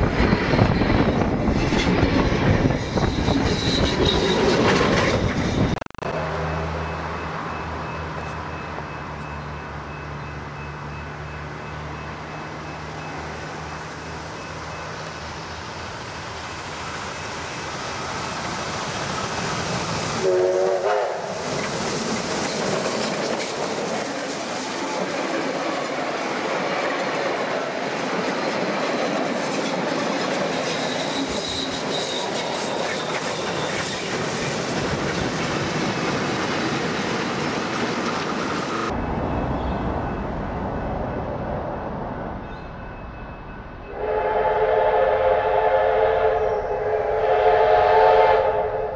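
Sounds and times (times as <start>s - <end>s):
steam locomotive passing: 0.0s - 48.9s
steam whistle blast: 20.2s - 21.3s, 43.9s - 48.9s.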